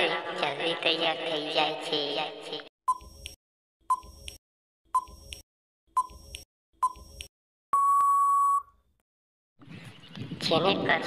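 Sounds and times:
ticking beeps: 0:02.9 - 0:04.4, 0:05.0 - 0:08.7
long steady beep: 0:07.7 - 0:08.7.

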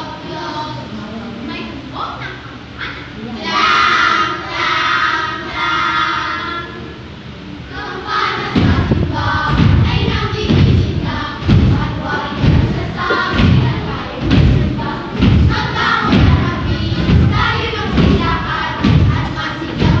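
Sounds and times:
children chanting: 0:02.2 - 0:06.9, 0:07.7 - 0:20.0
heavy thumping beat: 0:08.3 - 0:20.0.

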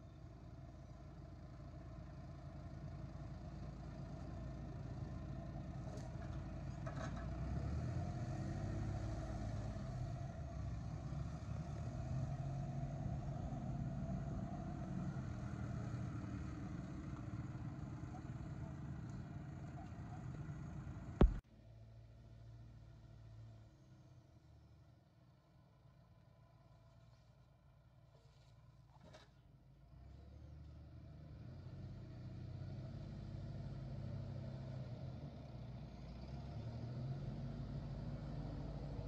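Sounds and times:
tractor diesel engine running: 0:10.0 - 0:21.4.

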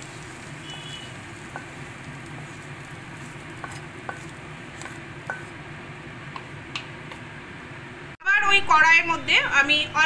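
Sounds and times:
spatula tapping a wok: 0:00.0 - 0:05.7, 0:06.3 - 0:07.3.

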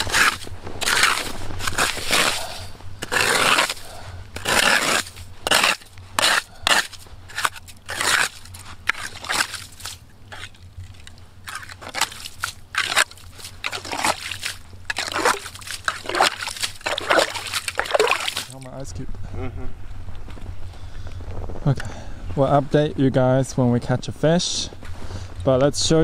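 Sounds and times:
crunching of snow and ice: 0:00.0 - 0:18.8.

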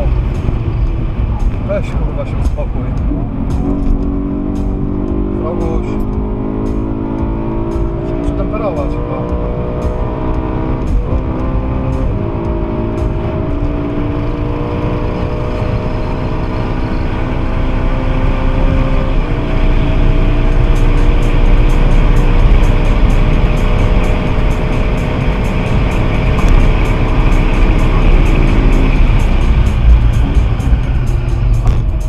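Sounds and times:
car engine accelerating: 0:00.0 - 0:32.0
road and wind noise: 0:00.0 - 0:32.0.

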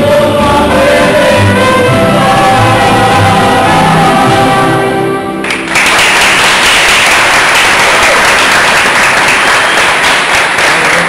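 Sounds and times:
crowd applause: 0:05.4 - 0:11.0.

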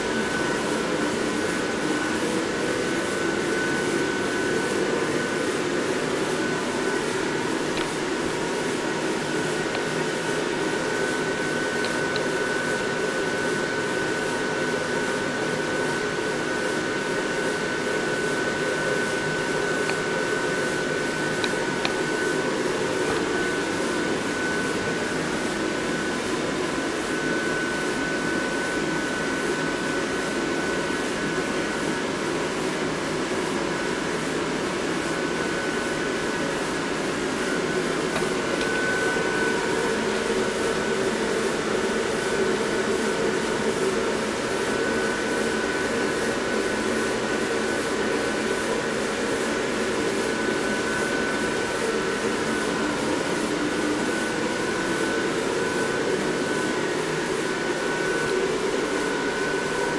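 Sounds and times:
blower fans rushing air: 0:00.0 - 0:59.9
thin steady whine: 0:00.0 - 0:59.9.

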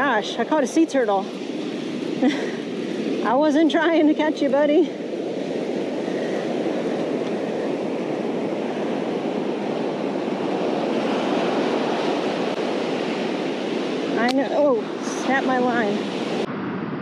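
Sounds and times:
ocean surf washing over sand: 0:00.0 - 0:17.0.

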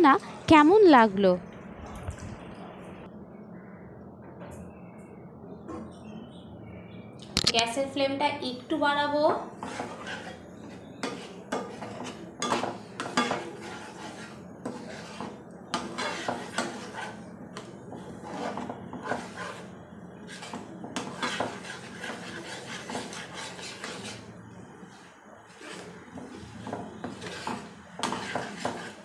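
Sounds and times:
steady low hum: 0:00.0 - 0:29.0
metal spatula scraping frying pan: 0:09.5 - 0:24.3, 0:25.5 - 0:29.0.

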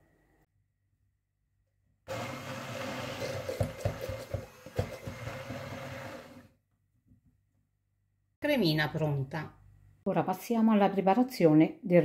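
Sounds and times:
immersion blender running: 0:02.1 - 0:06.6.

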